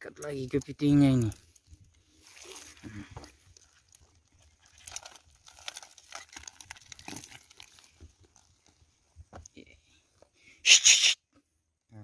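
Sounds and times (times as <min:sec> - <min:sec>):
netting rustling and crackling: 0:00.4 - 0:09.4.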